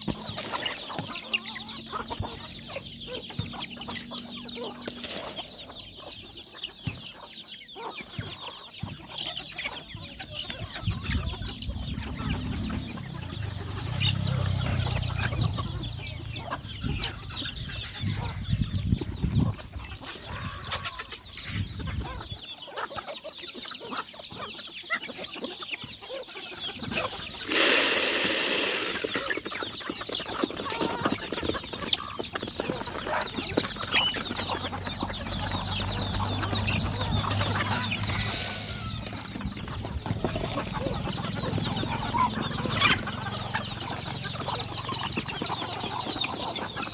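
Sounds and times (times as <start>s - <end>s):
chickens clucking: 0.0s - 46.9s
chicks peeping: 0.0s - 46.9s
loud burst of noise: 27.4s - 29.1s.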